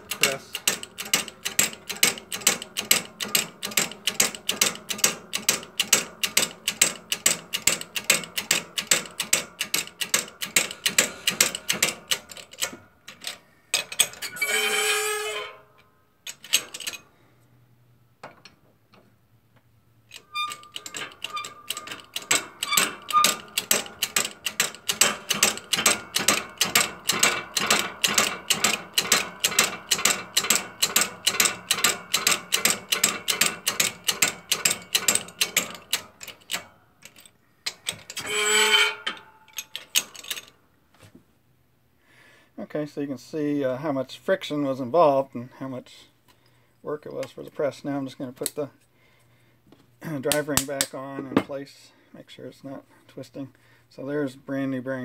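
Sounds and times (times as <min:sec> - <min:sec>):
hydraulic press clicking: 0:00.0 - 0:14.4, 0:20.1 - 0:40.5
short squeaky tone: 0:14.2 - 0:15.8, 0:38.2 - 0:39.6.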